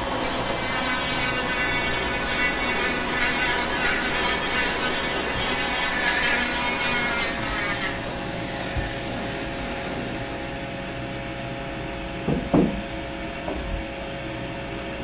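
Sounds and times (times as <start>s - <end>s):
power carver grinding wood: 0.0s - 9.5s
vacuum running: 7.9s - 14.9s
short knocks: 12.3s - 12.9s.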